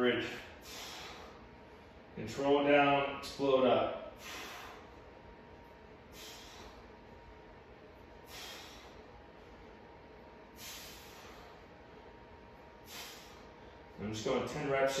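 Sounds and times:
man exhaling forcefully: 0.4 - 1.4, 4.1 - 5.0, 6.1 - 6.9, 8.2 - 9.0, 10.6 - 11.6, 12.8 - 13.7.

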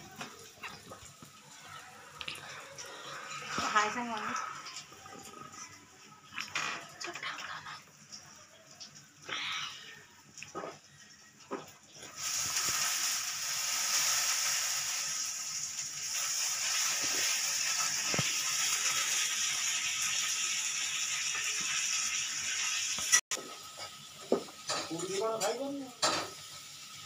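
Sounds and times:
steady hiss: 12.0 - 27.0.

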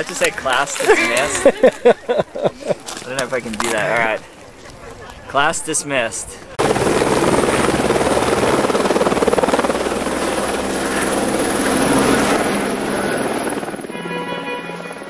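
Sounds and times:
helicopter rotor and engine: 0.0 - 2.2, 6.6 - 14.2
steady pitched tone: 13.6 - 15.0.

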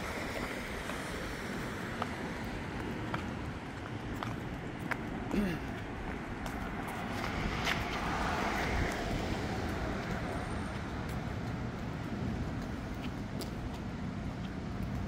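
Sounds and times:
low rumble of road traffic: 0.0 - 15.0
car passing by: 6.6 - 13.2.

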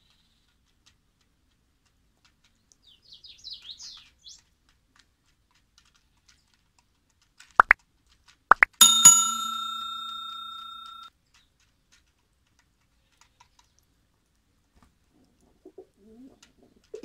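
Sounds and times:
pigeons pecking tapping clicks: 0.3 - 3.0, 3.6 - 8.8, 11.2 - 13.9
sparrow chirps: 2.8 - 4.4
sharp pops: 8.5 - 9.2.

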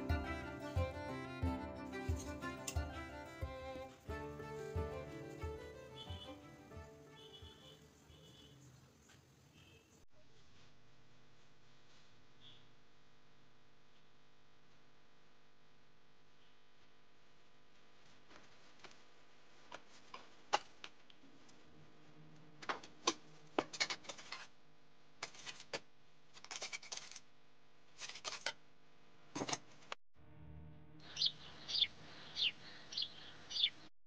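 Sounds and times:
bird chirping: 31.0 - 33.9.

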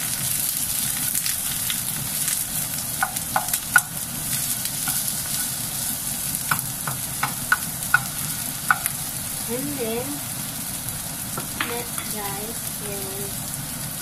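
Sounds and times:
vegetables sizzling in hot oil: 0.0 - 14.0
spatula clicking against pan: 3.0 - 4.0, 4.8 - 5.1, 6.4 - 9.0.

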